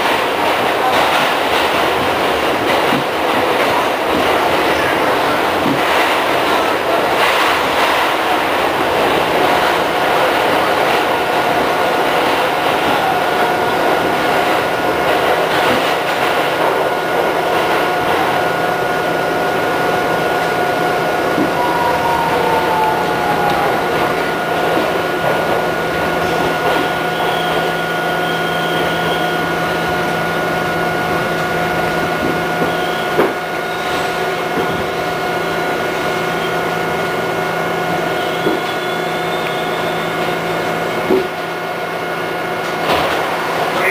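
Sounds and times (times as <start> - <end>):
wheels rumbling on rail: 0.0 - 43.9
steady whine: 21.1 - 26.2.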